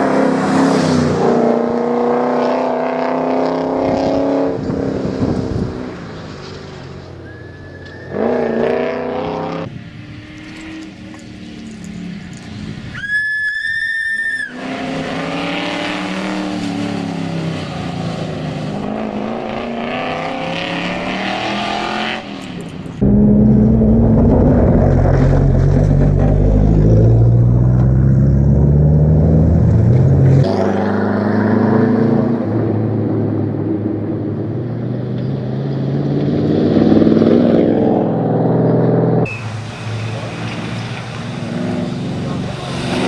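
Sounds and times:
rally car engine revving: 0:00.0 - 0:12.9, 0:14.5 - 0:43.0
brief high-pitched squeal: 0:13.0 - 0:14.6.

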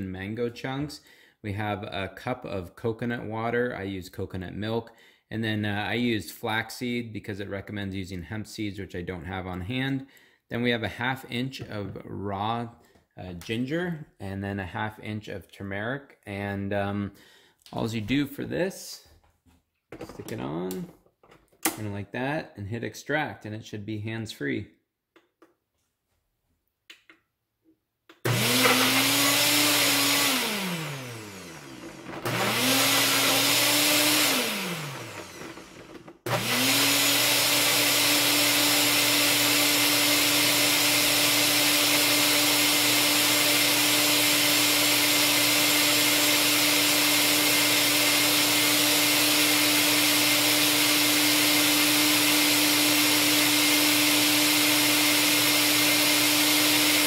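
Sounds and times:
blender motor running: 0:28.2 - 0:57.0.

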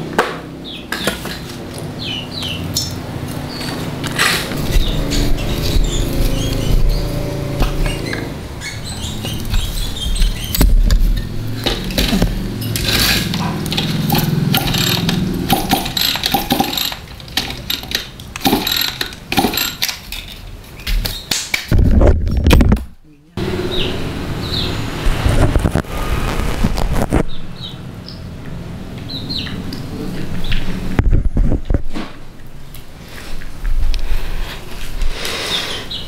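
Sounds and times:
hand tool clinking on metal: 0:12.0 - 0:20.5.

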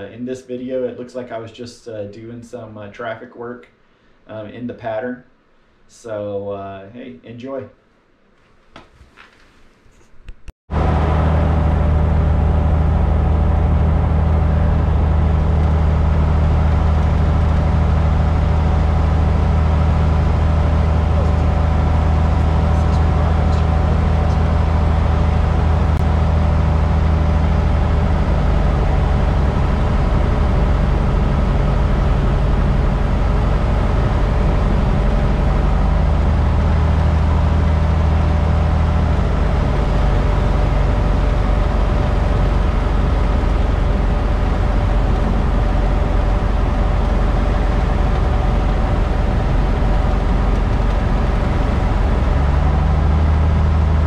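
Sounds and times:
aircraft engine and propeller drone: 0:10.7 - 0:54.0.

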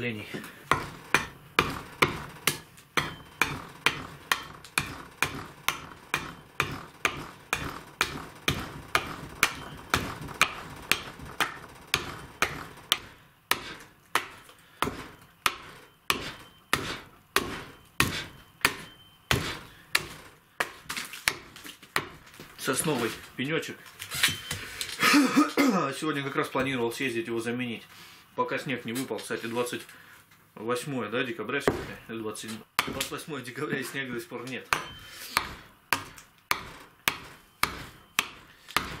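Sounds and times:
hatchet chopping wood: 0:00.7 - 0:22.5, 0:31.7 - 0:32.0, 0:32.8 - 0:33.2, 0:34.7 - 0:39.0.

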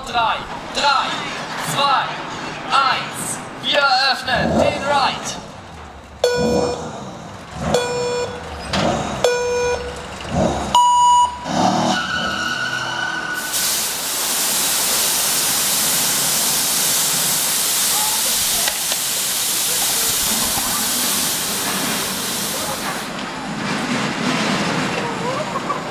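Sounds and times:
countdown beeps: 0:06.2 - 0:06.8, 0:07.8 - 0:08.4, 0:09.2 - 0:10.0, 0:10.8 - 0:11.5
hiss of smoke jets: 0:13.4 - 0:23.2.

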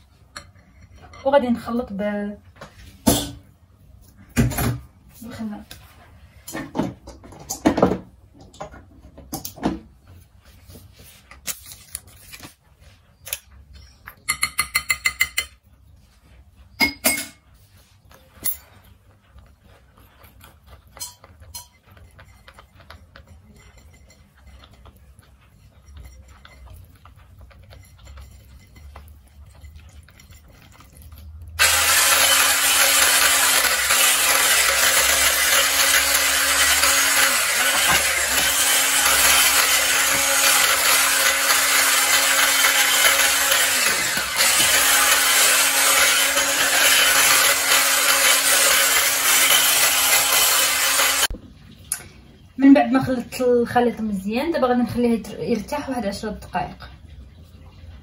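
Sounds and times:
utensils clinking on glass bowl: 0:14.0 - 0:15.6, 0:16.8 - 0:17.4, 0:20.2 - 0:51.3
electric hand mixer running: 0:31.6 - 0:51.3.

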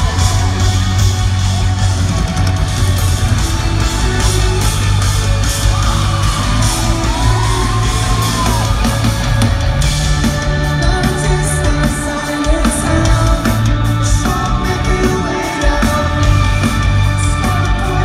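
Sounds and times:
fans yelling and whooping: 0:00.0 - 0:13.0
live rock band: 0:00.0 - 0:18.0.

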